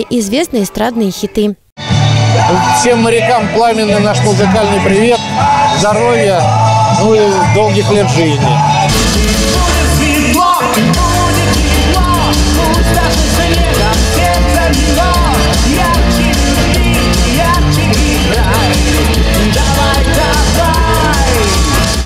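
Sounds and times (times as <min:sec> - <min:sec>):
bass guitar: 0:01.8 - 0:22.0
drums: 0:01.8 - 0:22.0
person singing: 0:02.2 - 0:22.0
electric guitars: 0:04.2 - 0:22.0.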